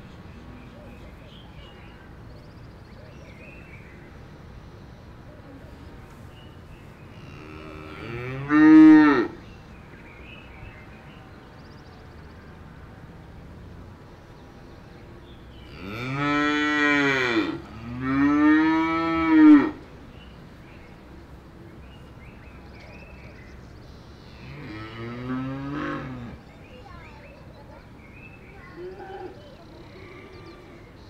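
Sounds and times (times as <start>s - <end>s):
cattle mooing: 24.4s - 26.4s.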